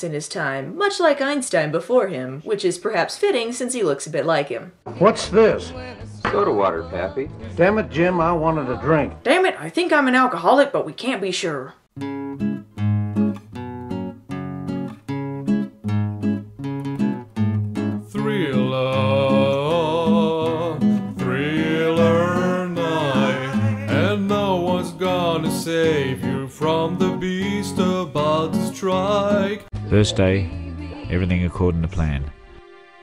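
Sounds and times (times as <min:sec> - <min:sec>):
person singing: 0:04.9 - 0:09.2, 0:18.0 - 0:32.6
strummed acoustic guitar: 0:12.0 - 0:30.3.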